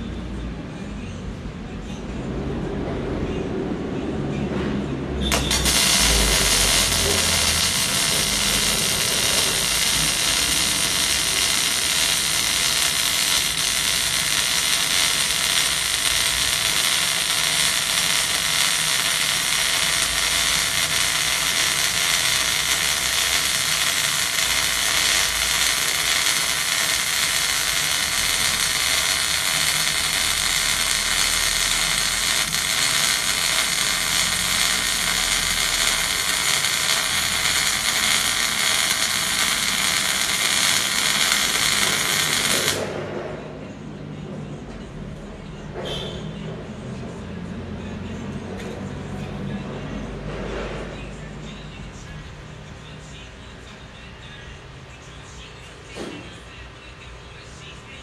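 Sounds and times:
welding arc crackling hiss: 5.3s - 42.9s.

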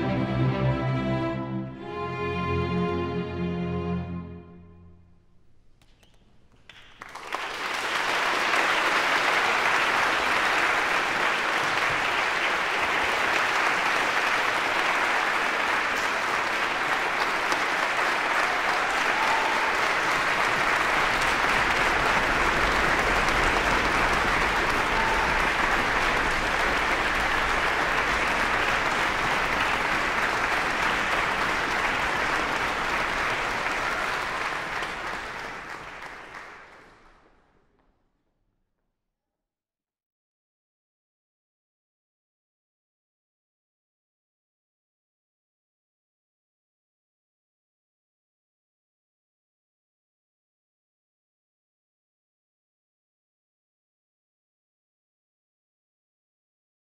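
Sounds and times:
audience applauding: 6.0s - 37.4s.

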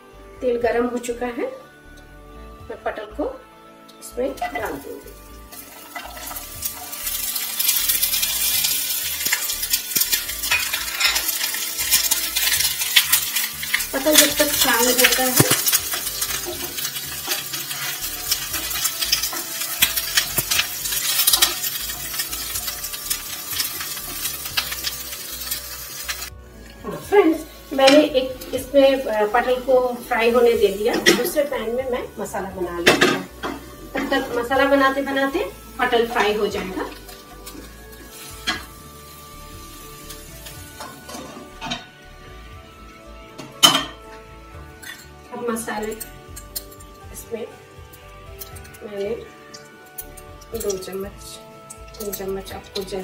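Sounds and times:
faint background music: 0.0s - 53.0s
vegetable slices sizzling in oil: 4.0s - 53.0s
kitchen utensils clinking: 4.6s - 26.3s, 26.9s - 31.8s, 32.8s - 38.8s, 40.4s - 41.9s, 43.4s - 44.1s, 44.7s - 47.1s, 47.8s - 53.0s
wooden spatula scraping pan: 40.8s - 41.9s.

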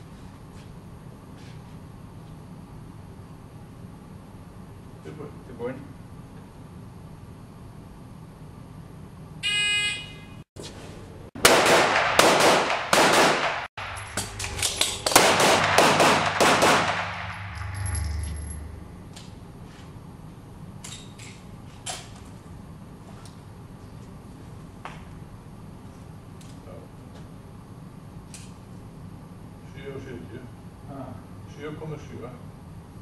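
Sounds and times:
handgun shots ringing indoors: 11.4s - 18.2s.

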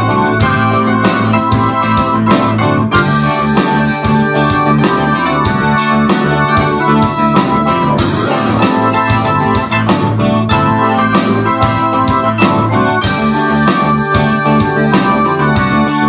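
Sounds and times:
low bass line: 0.0s - 16.0s
organ-like keyboard chords: 0.0s - 16.0s.

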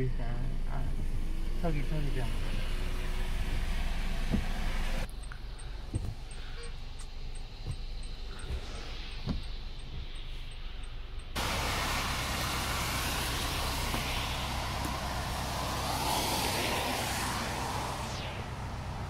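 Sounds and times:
low rumble inside car: 0.0s - 19.0s
wind rushing: 8.2s - 19.0s
floodwater running: 11.4s - 18.0s.

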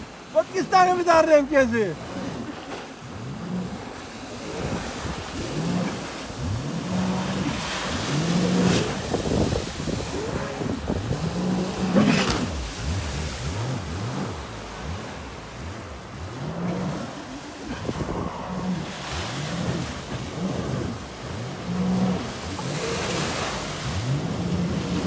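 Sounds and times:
watercraft engine revving: 0.0s - 25.0s.

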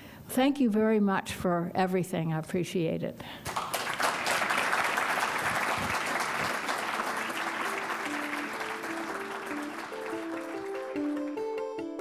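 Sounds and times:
audience applauding: 3.5s - 11.5s
closing theme music: 5.6s - 12.0s.

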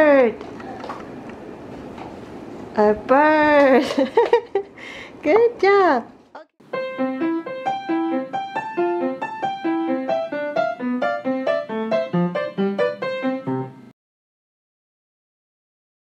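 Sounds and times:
bright piano melody: 6.6s - 13.9s.

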